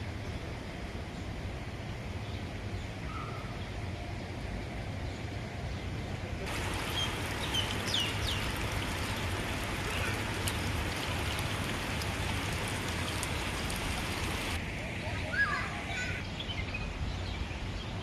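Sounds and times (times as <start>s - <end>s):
water trickling: 6.5s - 14.6s
bird chirps: 6.9s - 8.5s.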